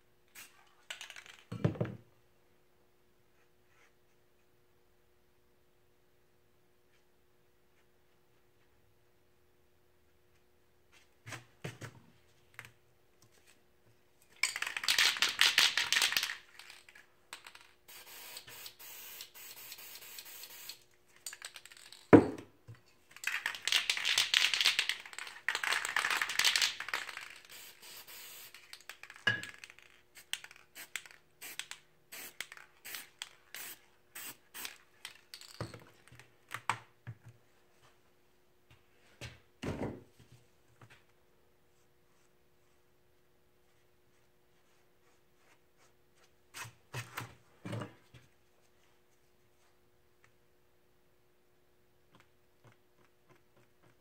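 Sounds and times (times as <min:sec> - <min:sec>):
spray paint can hissing: 0:17.9 - 0:20.8, 0:26.0 - 0:28.8, 0:30.2 - 0:34.8.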